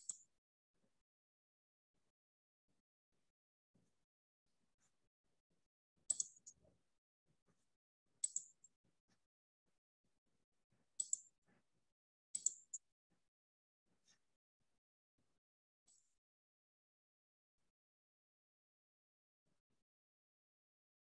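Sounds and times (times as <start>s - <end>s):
computer mouse clicking: 6.1s - 6.6s, 8.2s - 8.6s, 11.0s - 11.3s, 12.4s - 12.8s.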